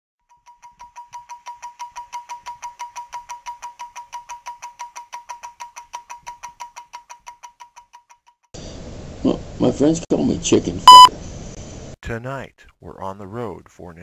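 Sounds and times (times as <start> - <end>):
stopwatch ticking: 0.3 - 8.5.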